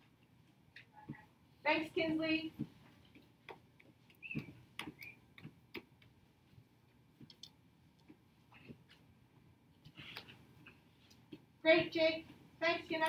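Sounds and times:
faint clicks and ticks: 7.2s - 9.0s.

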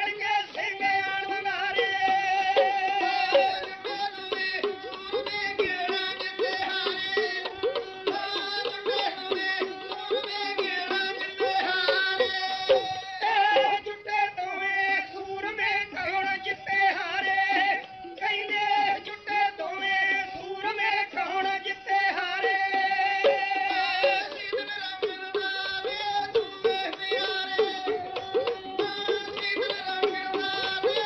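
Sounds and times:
small hand drum strokes: 1.7s - 13.8s.

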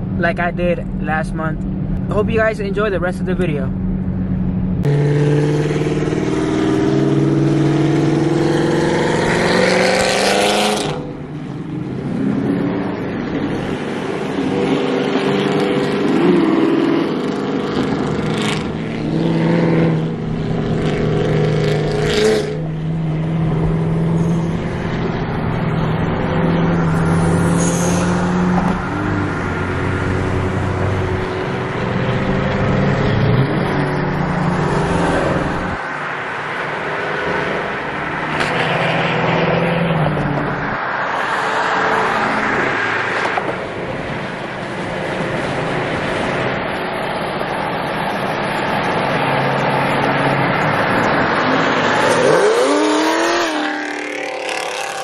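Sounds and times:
car engines cruising drone: 0.0s - 55.0s
car engine revving up: 3.2s - 46.7s, 48.2s - 55.0s.

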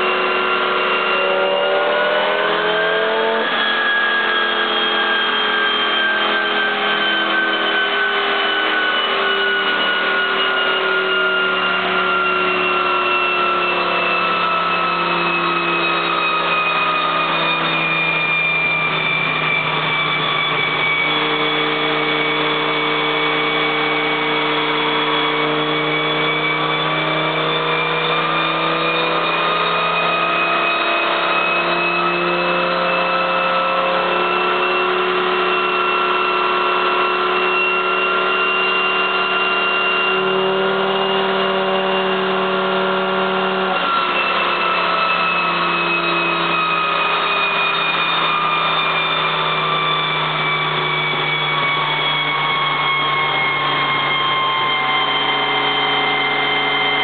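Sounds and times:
car engine revving on dynamometer: 0.0s - 57.0s
high whine: 0.0s - 57.0s.

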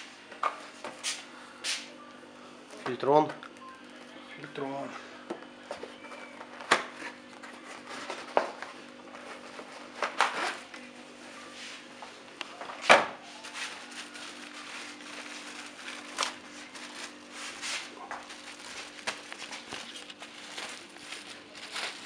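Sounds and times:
packaging crinkling and rustling: 13.4s - 22.0s.

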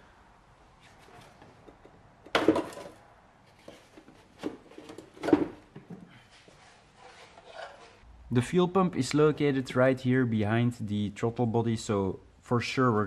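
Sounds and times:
plastic box knocking and clattering: 2.3s - 3.0s.

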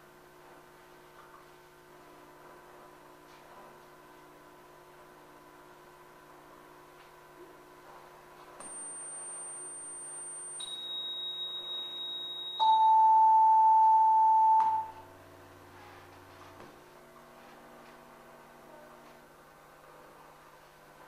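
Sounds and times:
steady pure test tones: 8.6s - 15.1s.

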